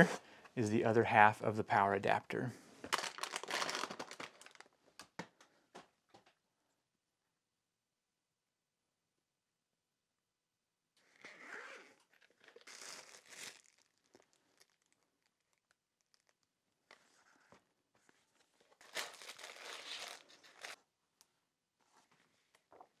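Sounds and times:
plastic wrapping crinkling: 2.9 - 4.8, 12.0 - 16.6, 18.7 - 20.8.

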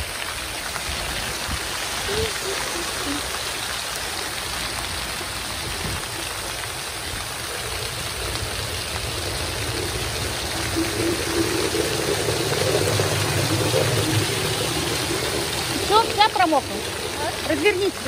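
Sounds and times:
fountain water jets splashing: 0.0 - 18.0.

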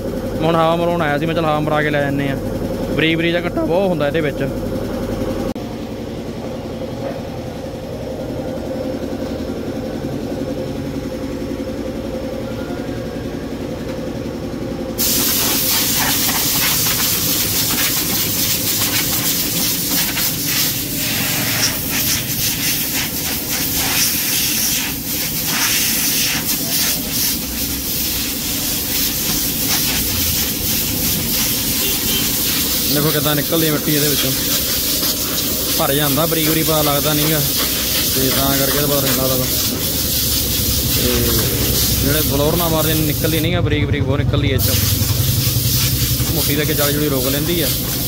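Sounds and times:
engine humming: 7.6 - 48.0
compressed air hissing: 15.0 - 43.5, 44.6 - 48.0.

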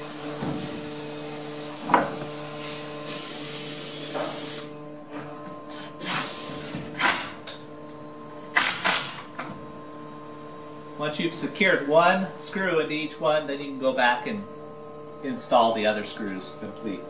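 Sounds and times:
screw gun whirring: 5.7 - 7.6, 8.3 - 9.4.

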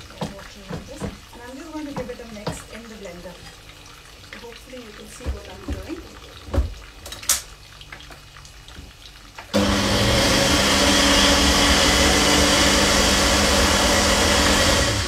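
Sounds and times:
blender running: 9.5 - 15.0.

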